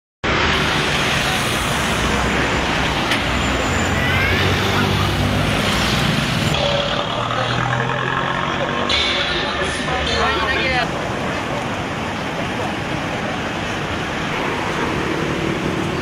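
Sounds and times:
cars driving past: 0.2s - 16.0s
motorcycles driving past: 3.5s - 8.9s, 14.2s - 16.0s.

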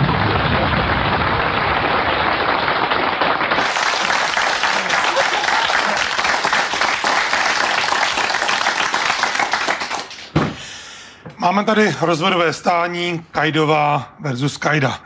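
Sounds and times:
studio audience applauding: 0.0s - 10.4s.

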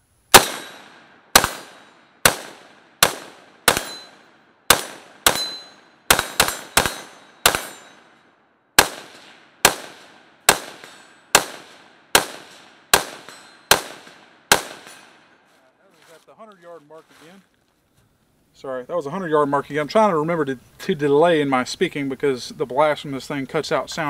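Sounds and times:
rifle shots with echo: 0.3s - 8.2s, 8.8s - 15.4s.

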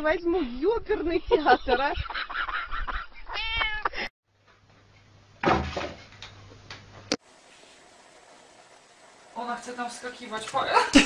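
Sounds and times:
cat meowing: 3.3s - 3.9s.

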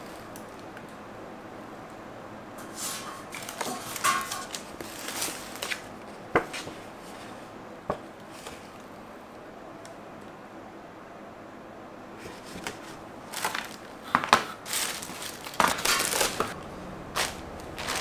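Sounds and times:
packaging rustling and crinkling: 2.7s - 7.2s, 12.3s - 18.0s.

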